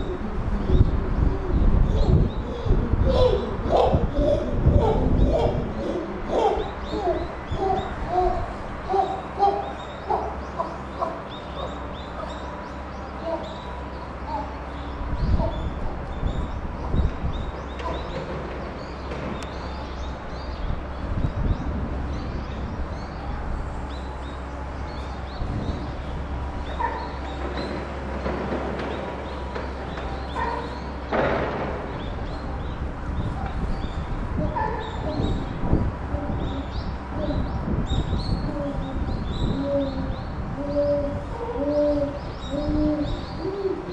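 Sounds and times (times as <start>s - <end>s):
chimpanzee whimpering: 1.5s - 11.2s.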